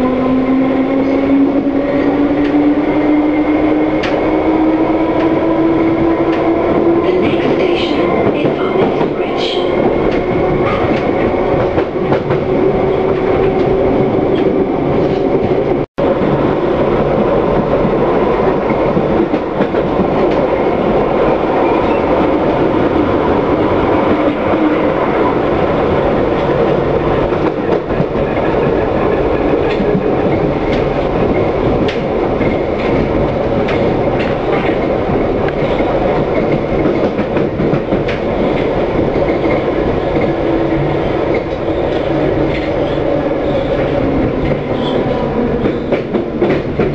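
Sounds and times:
train wheels rumbling on rail: 0:00.0 - 0:46.9
clicks of wheels on rail: 0:03.9 - 0:04.3, 0:05.1 - 0:12.5, 0:26.4 - 0:46.9.

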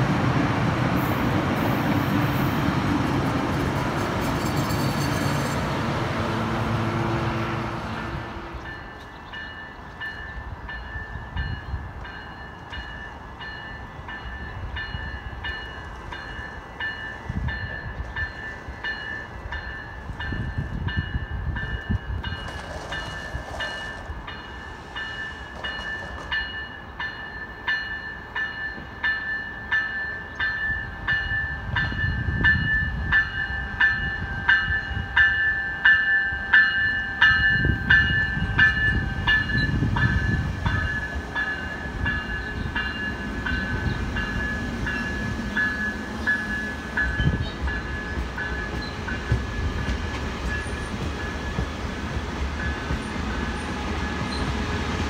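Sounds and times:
train rumble: 0:00.0 - 0:55.0
bell ringing steadily: 0:23.1 - 0:49.9.

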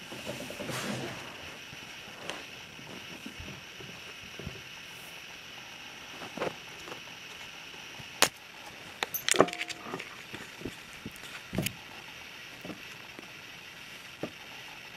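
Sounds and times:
metal cable clicking and rattling: 0:09.0 - 0:10.4.

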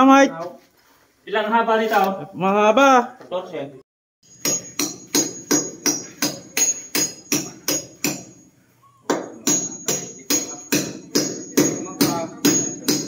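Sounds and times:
jingling metallic strikes: 0:04.2 - 0:08.5, 0:09.2 - 0:13.0.

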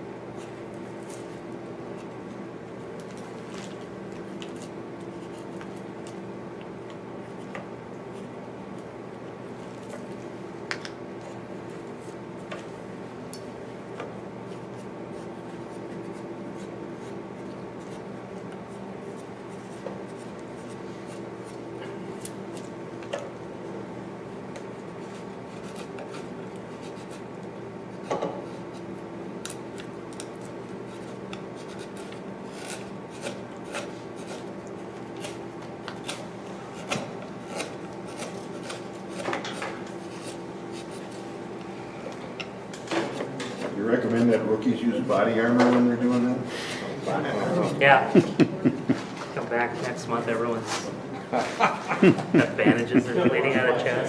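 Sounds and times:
steady low hum: 0:00.0 - 0:54.0
chisel slicing and scraping wood: 0:30.8 - 0:34.5, 0:35.1 - 0:41.2.

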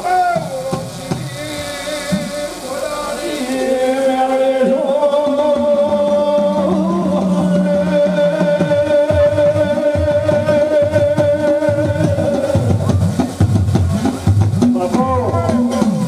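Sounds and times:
man chanting into a microphone: 0:00.0 - 0:13.2, 0:14.6 - 0:16.0
devotional music with held notes: 0:01.1 - 0:13.4.

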